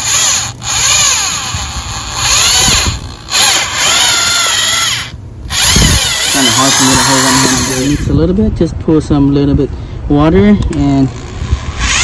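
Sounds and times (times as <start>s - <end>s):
electric drill mixing mortar: 0.0s - 8.1s, 11.2s - 12.0s.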